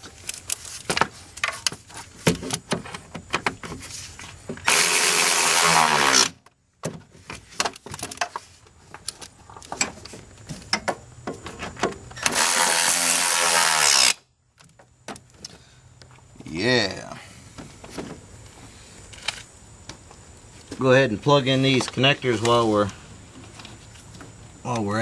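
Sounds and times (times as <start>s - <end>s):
cordless drill running: 4.7s - 6.3s, 12.2s - 14.2s.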